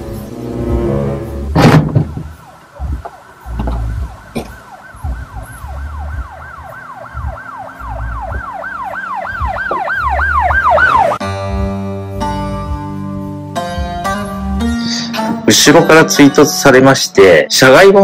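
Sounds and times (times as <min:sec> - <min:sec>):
siren in rapid falling sweeps: 0:02.0 - 0:11.2.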